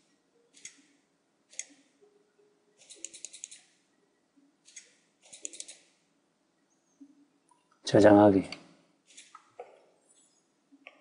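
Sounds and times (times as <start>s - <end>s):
computer mouse and keyboard clicks: 2.8s - 3.7s, 4.7s - 5.9s.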